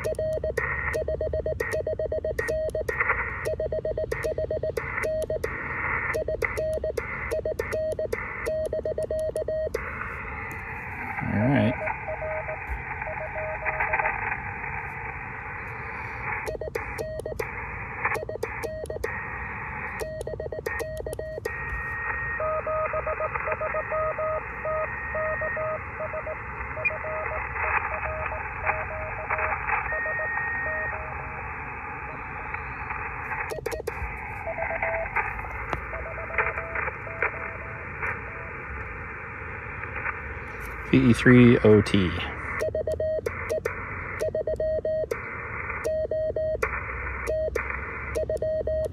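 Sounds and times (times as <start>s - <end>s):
morse code beeps: 0.0s - 9.9s, 16.4s - 17.5s, 18.1s - 19.2s, 20.0s - 21.7s, 22.3s - 31.0s, 33.4s - 35.2s, 35.9s - 37.7s, 42.5s - 45.2s, 45.8s - 48.9s
receiver hiss: 0.0s - 48.9s.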